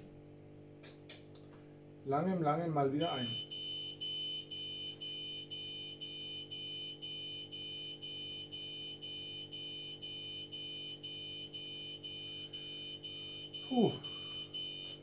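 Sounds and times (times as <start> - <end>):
low machine hum: 0.0 - 15.0
high alarm beep: 3.0 - 15.0.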